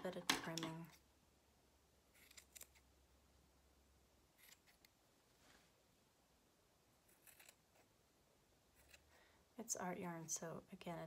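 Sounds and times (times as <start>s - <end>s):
scissors snipping yarn: 2.2s - 2.8s, 4.4s - 5.0s, 7.1s - 7.9s.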